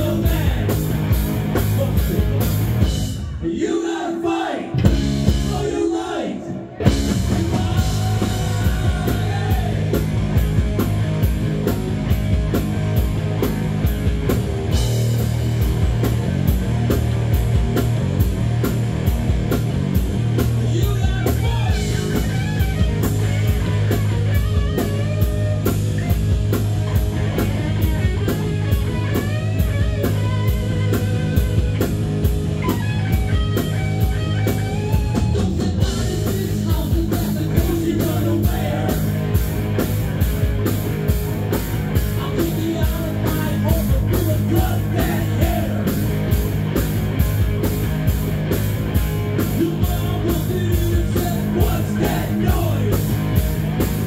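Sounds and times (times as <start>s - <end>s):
man singing into a microphone: 0.0s - 0.7s, 7.4s - 9.9s, 20.6s - 21.8s, 35.4s - 39.1s, 42.2s - 45.9s, 49.5s - 53.0s
live rock band playing: 0.0s - 3.5s, 4.7s - 5.9s, 6.6s - 54.0s.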